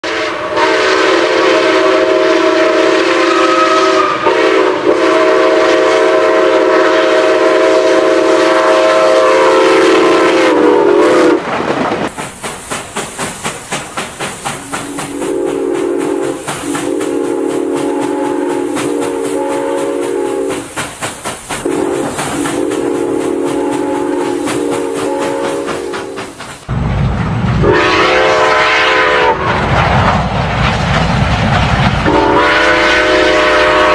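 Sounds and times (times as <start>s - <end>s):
steam locomotive whistle blasts: 0.0s - 11.4s, 14.6s - 20.8s, 21.6s - 26.3s, 27.6s - 29.7s, 32.0s - 33.9s
locomotive exhaust chuffs: 12.1s - 26.8s, 27.6s - 33.9s.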